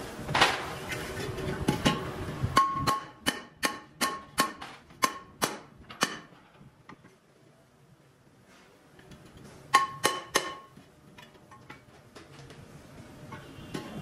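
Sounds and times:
hammer striking metal rim: 1.8 - 6.3, 9.7 - 10.8.

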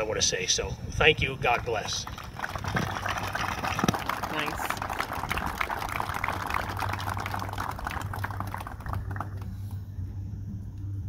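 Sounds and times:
audience applauding: 1.9 - 9.5.

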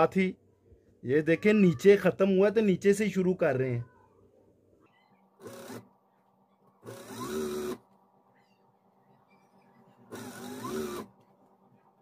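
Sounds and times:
faint steady hum: 0.0 - 12.0
sewing machine whine: 5.4 - 5.9, 6.8 - 7.8, 9.3 - 11.1.

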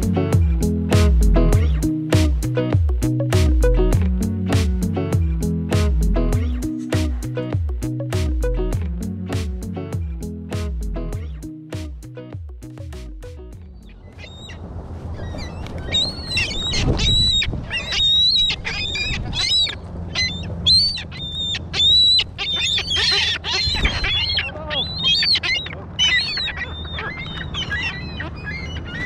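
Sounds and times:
steady low rumble: 0.0 - 15.2
gulls squawking: 13.5 - 29.0.

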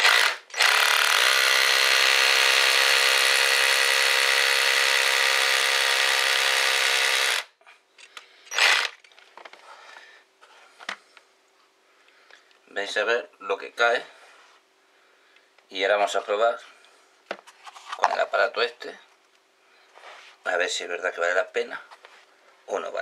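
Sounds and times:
electric drill drilling into wall: 0.0 - 7.5, 8.5 - 9.0.

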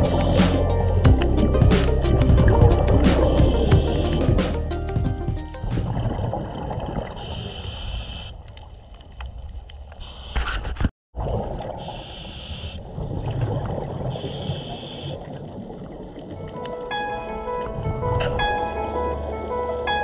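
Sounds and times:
muffled underwater rumble: 0.0 - 4.4
bubbling hiss of regulator: 0.0 - 4.9, 7.2 - 8.3.

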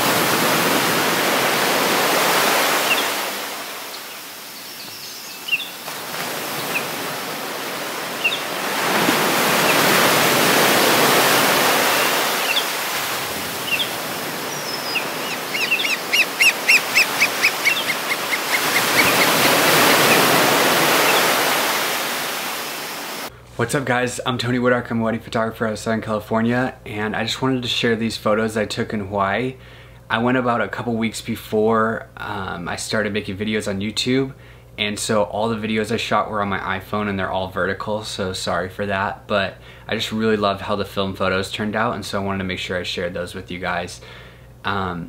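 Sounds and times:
ocean surf breaking: 0.0 - 23.3
birds chirping: 2.4 - 23.3.

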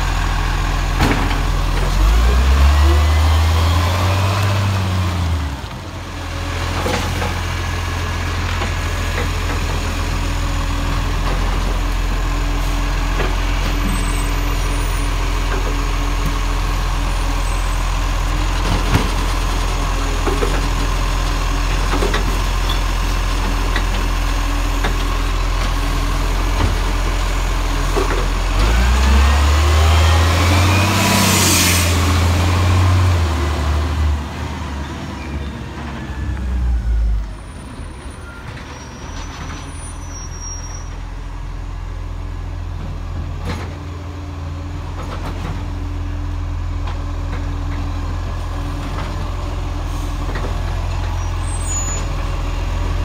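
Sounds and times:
diesel truck engine revving: 0.0 - 38.2.

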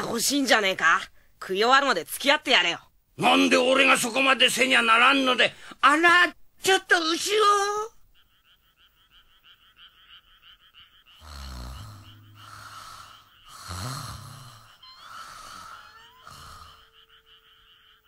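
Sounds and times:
rapid chirping: 8.1 - 18.0
cartoon snoring: 11.1 - 17.1.

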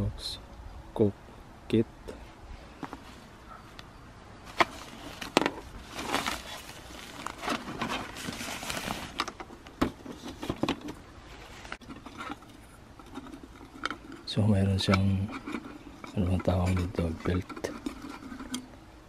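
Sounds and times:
mesh bag rustling: 4.4 - 9.4.

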